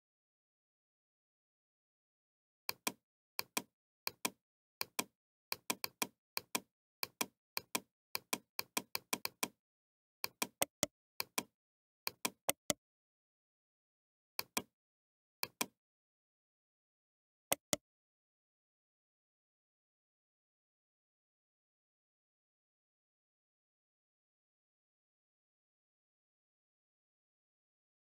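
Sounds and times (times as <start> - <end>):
computer mouse button clicks: 12.1 - 12.8, 17.5 - 17.8.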